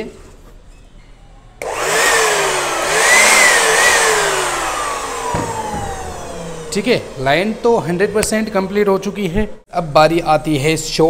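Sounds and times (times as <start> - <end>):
electric motor whirring: 1.6 - 8.8.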